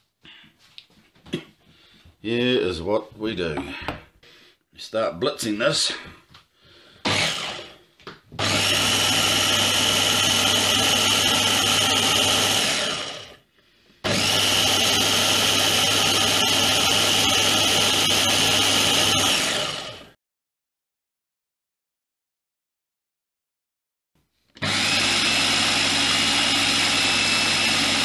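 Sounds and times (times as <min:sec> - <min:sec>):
blender motor running: 0:07.0 - 0:13.4, 0:14.0 - 0:20.2, 0:24.6 - 0:28.0.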